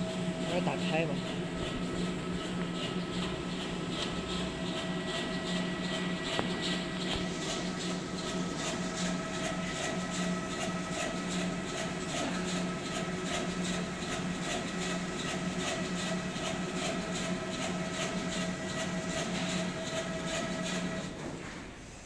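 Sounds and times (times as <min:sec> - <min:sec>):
machine motor hum and whine: 0:00.0 - 0:21.2.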